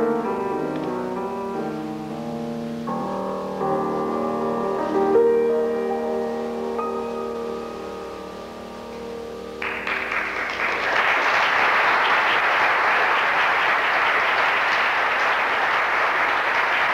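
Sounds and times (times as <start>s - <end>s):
piano chord: 0.0s - 11.8s
audience applause: 9.6s - 16.9s.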